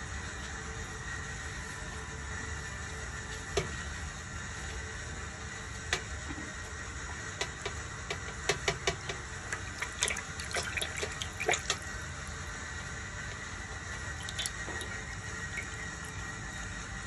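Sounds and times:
water splashing in a basin: 9.5 - 11.9, 14.1 - 16.1.

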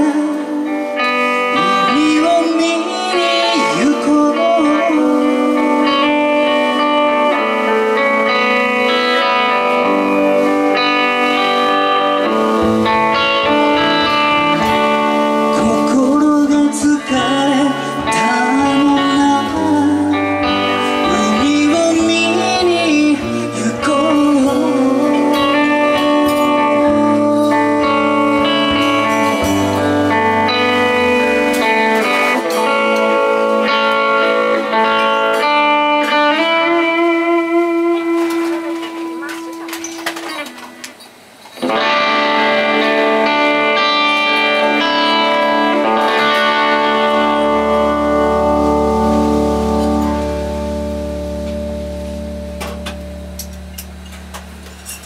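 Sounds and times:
guitars: 0.0 - 55.0
live band playing: 0.0 - 55.0
bass notes: 12.0 - 35.0, 44.7 - 55.0.

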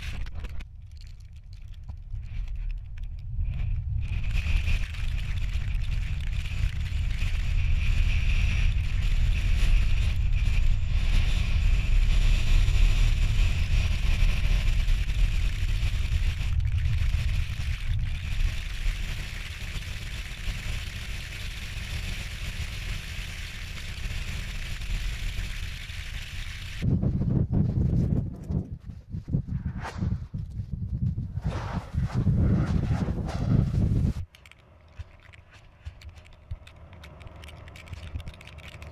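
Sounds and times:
vehicle rumbling: 31.2 - 38.9.

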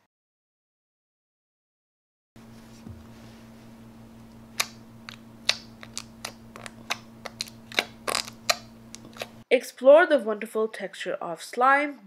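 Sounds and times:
faint steady hum: 2.4 - 9.5.

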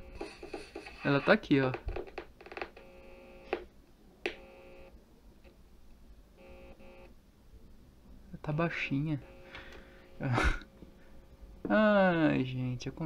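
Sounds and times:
buzzy test tone: 6.4 - 7.1, 9.1 - 10.5.

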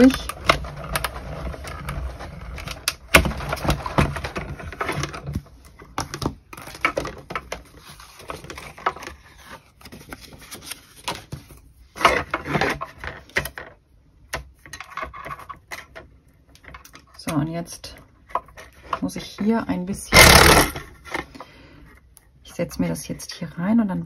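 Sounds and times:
paper rustling: 0.0 - 13.4.

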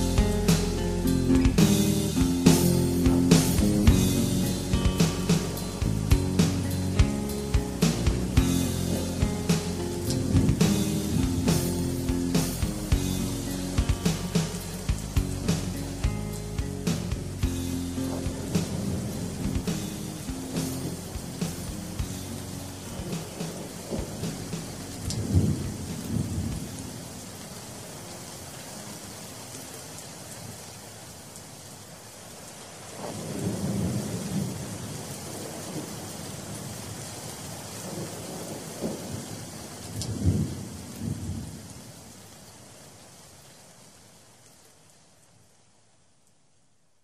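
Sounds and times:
steady rain hiss: 0.0 - 47.0
rolling thunder: 23.0 - 26.8, 40.0 - 41.7.

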